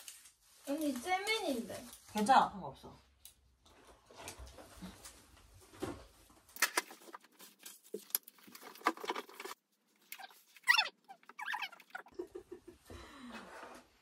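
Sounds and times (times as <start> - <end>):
tinsel rustling: 0.0 - 2.5.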